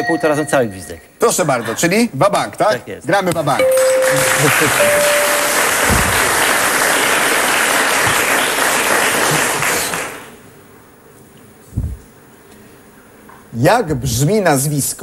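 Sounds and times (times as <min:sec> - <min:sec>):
audience applauding: 0:03.6 - 0:10.4.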